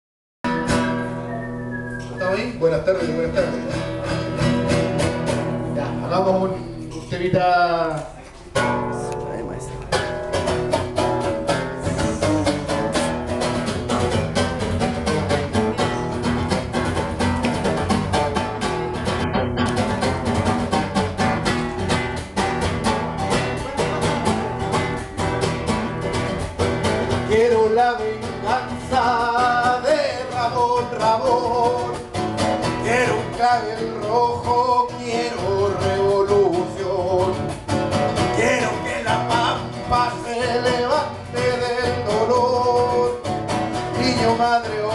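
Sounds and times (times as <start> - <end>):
acoustic guitar strumming: 0.4 - 44.9
man singing: 2.2 - 4.3, 11.4 - 16.0, 27.0 - 44.9.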